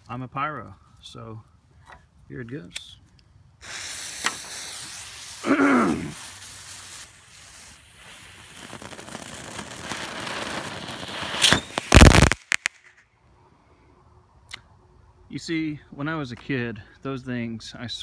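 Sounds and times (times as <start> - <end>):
firework fountain hissing: 3.6 - 12.9
firework pops: 3.7 - 5.0, 6.2 - 13.0.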